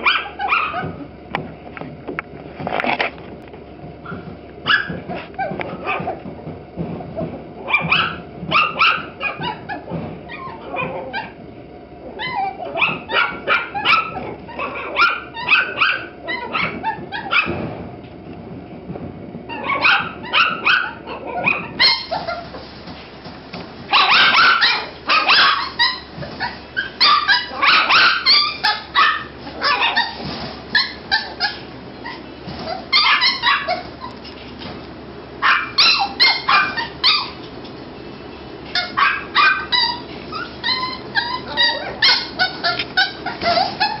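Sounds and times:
puppies yapping: 0.0 - 1.1, 4.0 - 6.3, 7.6 - 11.4, 12.0 - 17.6, 19.5 - 22.8, 23.9 - 34.6, 35.4 - 37.8, 38.6 - 44.0.

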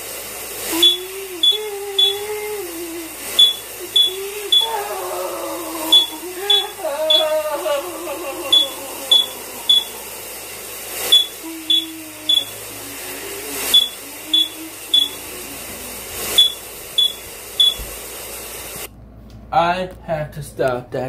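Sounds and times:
shower running: 0.0 - 18.9
low wavering voice: 0.7 - 3.2, 3.8 - 10.4, 11.4 - 16.2
smoke alarm beeping: 0.7 - 18.1.

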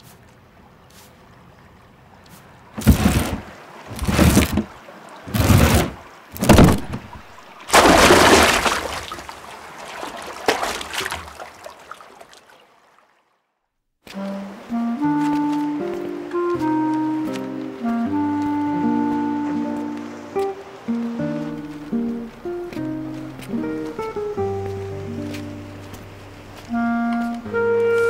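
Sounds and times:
water sloshing and splashing: 0.0 - 28.0
water washing against stone wall: 2.2 - 13.0.

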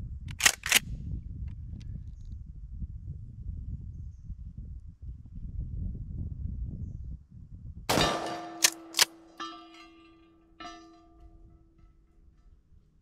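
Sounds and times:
shotgun shot: 7.9 - 9.5
sharp metallic cracks: 7.9 - 12.1
steel gong ringing: 8.0 - 11.3.

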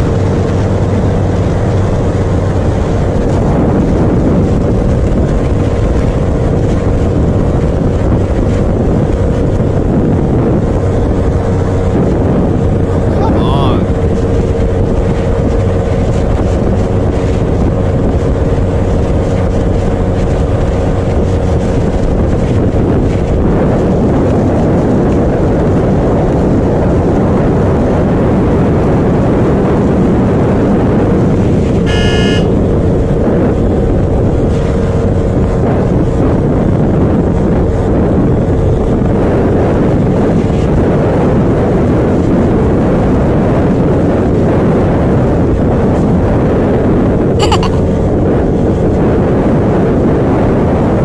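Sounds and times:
motorcycle engine at high speed: 0.0 - 51.0
wind rush on microphone: 0.0 - 51.0
horn toot: 31.9 - 32.6, 47.4 - 47.8.

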